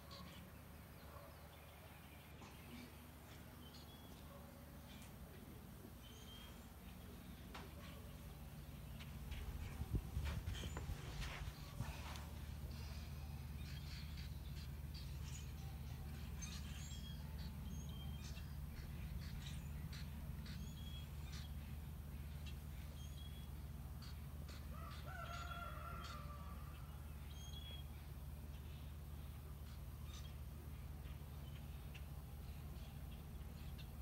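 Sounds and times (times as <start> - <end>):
steady low hum: 1.7 - 25.0
long drawn-out bird call: 24.0 - 27.9.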